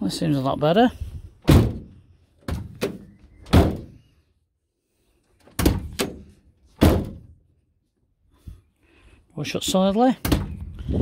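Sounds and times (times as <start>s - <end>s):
van door slamming: 1.4s - 4.0s, 5.6s - 7.4s.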